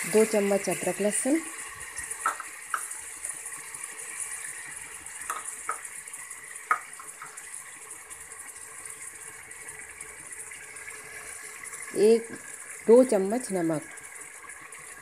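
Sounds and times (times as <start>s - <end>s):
food sizzling in oil: 0.0s - 15.0s
metal spoon tapping a pot: 2.2s - 2.9s, 5.2s - 5.8s.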